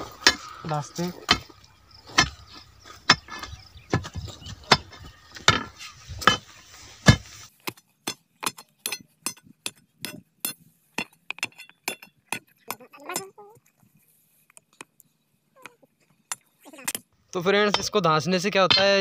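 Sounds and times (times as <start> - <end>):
crowbar knocking stones into hole: 2.1 - 12.5.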